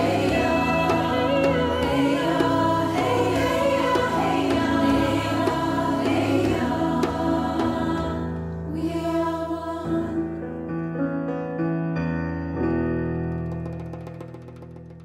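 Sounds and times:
women's choir singing: 0:00.0 - 0:10.4.

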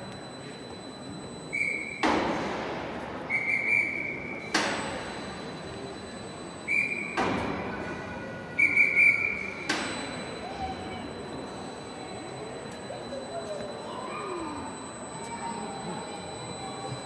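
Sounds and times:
signal whistle blasts: 0:01.4 - 0:02.0, 0:03.3 - 0:04.5, 0:06.6 - 0:07.2, 0:08.6 - 0:09.6.

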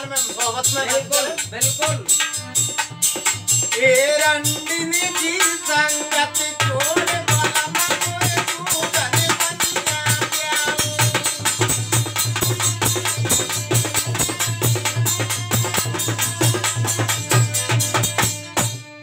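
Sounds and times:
dholak drum rhythm: 0:00.0 - 0:19.0.

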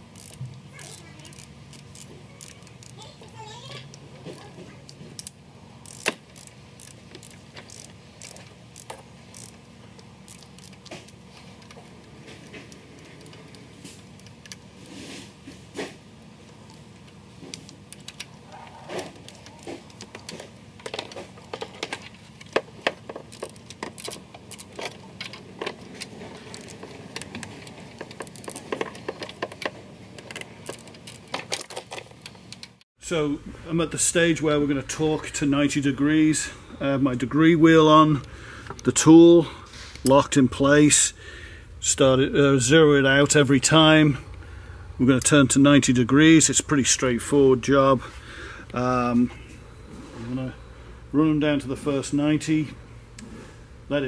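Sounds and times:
ratcheting torque wrench clicks: 0:00.1 - 0:03.0, 0:05.2 - 0:09.6, 0:10.2 - 0:11.0.

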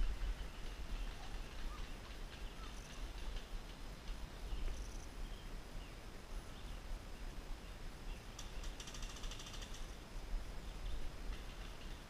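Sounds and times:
small birds chirping: 0:00.2 - 0:03.6.

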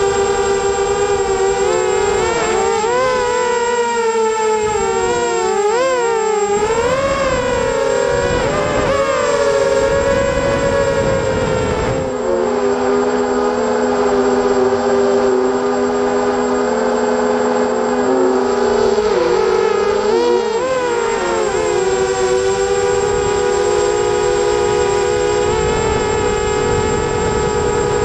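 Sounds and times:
quadcopter motors whining: 0:00.0 - 0:28.0
wind on microphone: 0:04.6 - 0:15.2, 0:20.3 - 0:28.0.

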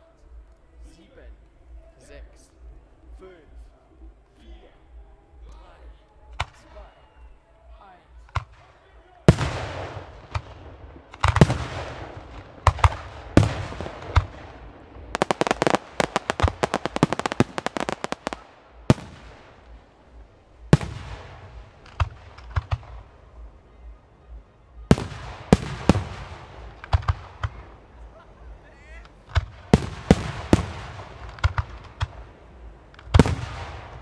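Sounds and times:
rapid sharp firework reports: 0:08.2 - 0:19.9, 0:28.8 - 0:34.0
firework shells bursting: 0:09.3 - 0:19.7, 0:29.1 - 0:32.3.

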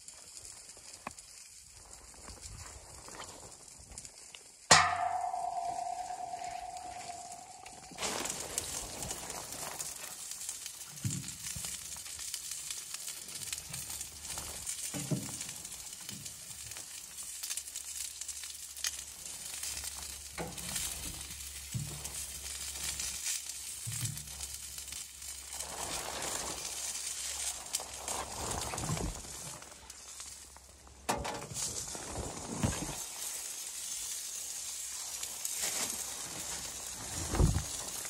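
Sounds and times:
meat sizzling on a grill: 0:07.9 - 0:30.8, 0:32.9 - 0:38.0.

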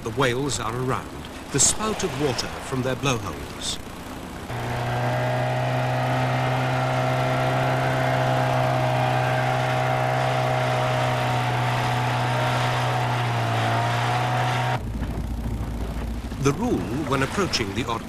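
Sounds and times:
boat motor humming: 0:00.0 - 0:18.0
water and wind hiss: 0:00.2 - 0:07.4, 0:16.2 - 0:18.0.

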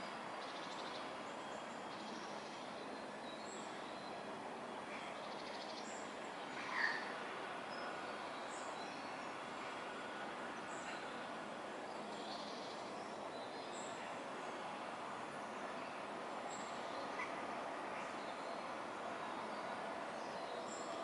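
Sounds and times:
low outdoor hum: 0:00.0 - 0:21.0
faint bird chirps: 0:04.9 - 0:09.3, 0:15.8 - 0:18.7.

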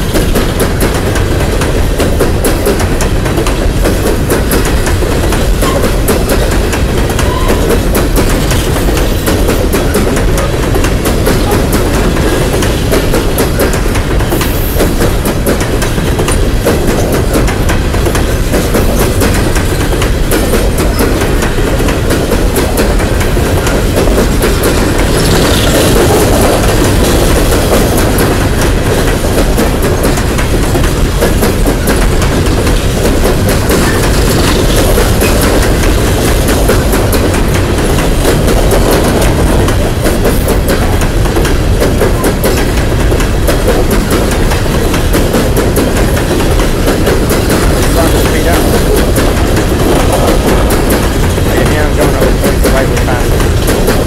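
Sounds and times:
train rumbling past: 0:00.0 - 0:54.0
wheels clattering over rail joints: 0:00.0 - 0:54.0.

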